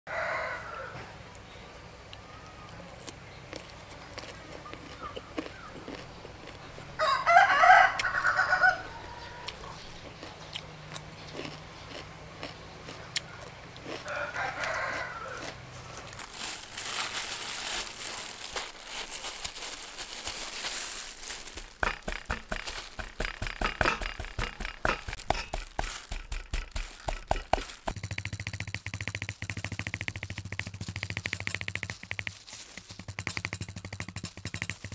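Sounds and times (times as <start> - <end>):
rooster crowing: 0.1 - 1.2, 6.9 - 9.8, 13.9 - 16.1
fork tapping meat on wooden board: 21.8 - 27.9.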